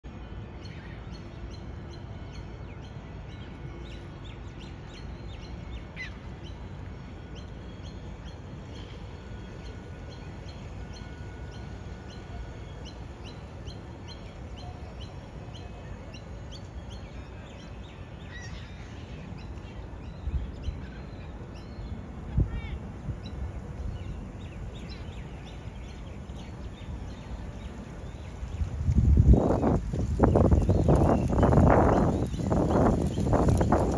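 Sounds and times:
small birds chirping: 7.8s - 33.9s.

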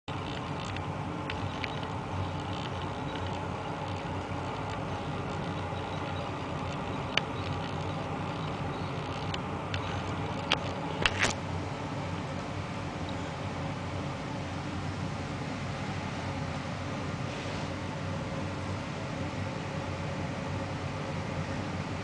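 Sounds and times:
background hum and hiss: 0.1s - 22.0s.

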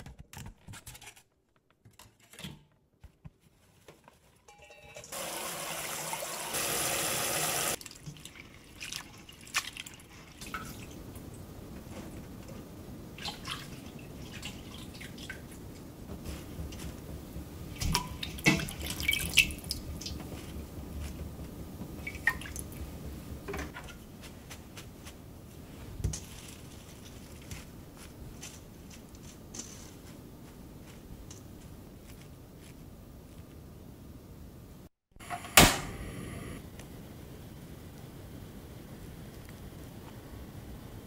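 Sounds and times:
water dripping in metal sink: 17.7s - 20.3s, 22.0s - 22.9s.

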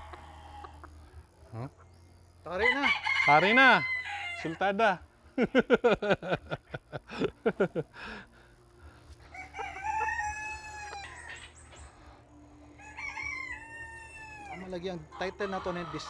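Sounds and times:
rooster crowing: 0.0s - 0.9s, 2.6s - 4.7s, 9.3s - 11.6s, 12.7s - 16.0s
chickens clucking: 0.0s - 2.2s, 9.4s - 12.3s, 14.2s - 16.0s.

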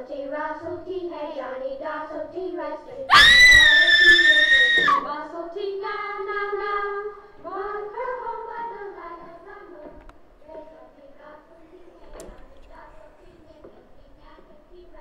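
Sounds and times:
child singing: 0.0s - 3.1s, 4.1s - 15.0s
loud high scream: 3.1s - 5.1s.

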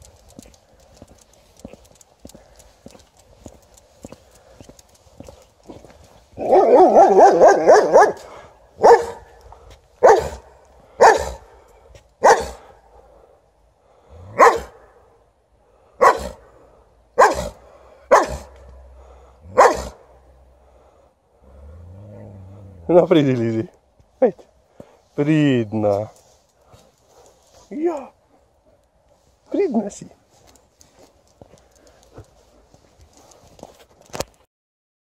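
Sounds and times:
dog barking: 6.4s - 9.4s, 10.0s - 11.5s, 12.2s - 12.6s, 14.3s - 14.9s, 16.0s - 16.4s, 17.2s - 18.6s, 19.5s - 20.1s.

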